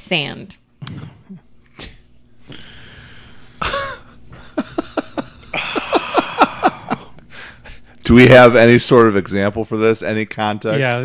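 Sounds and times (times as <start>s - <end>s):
people laughing: 3.6s - 7.2s.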